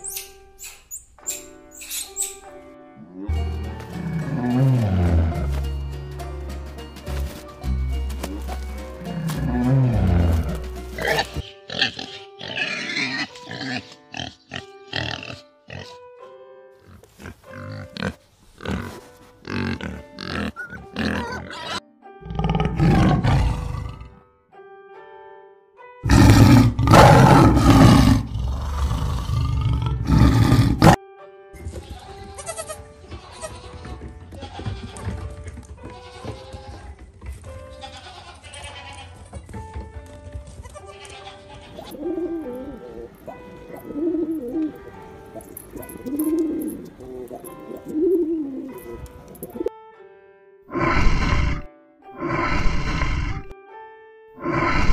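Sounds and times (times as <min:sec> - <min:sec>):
simple background tune: 0:00.0 - 0:52.5, 0:53.1 - 0:54.8
background music: 0:00.0 - 0:54.9
tigers growling and roaring: 0:17.0 - 0:24.2, 0:26.0 - 0:31.0, 0:50.7 - 0:53.5, 0:54.4 - 0:54.9
pigeons cooing: 0:41.8 - 0:49.7.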